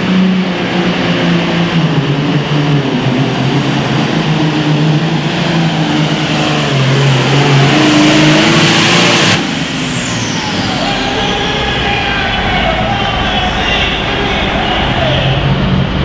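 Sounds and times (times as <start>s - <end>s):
diesel tractor engine running hard: 0.0s - 16.0s
turbocharger whistle falling: 7.6s - 13.9s.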